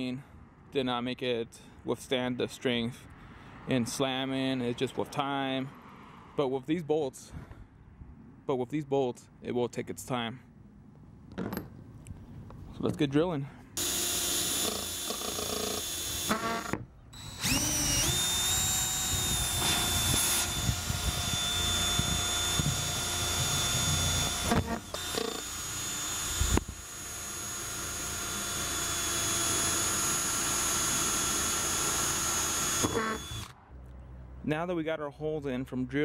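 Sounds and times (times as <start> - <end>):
power drill whining: 13.8 - 33.5.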